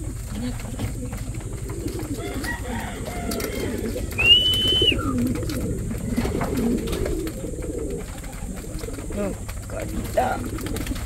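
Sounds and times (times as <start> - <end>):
pigeons cooing: 0.0 - 11.0.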